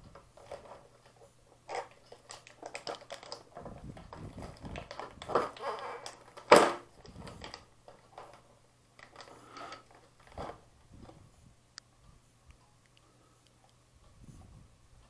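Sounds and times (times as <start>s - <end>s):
plastic packaging crinkling: 0.0s - 10.7s.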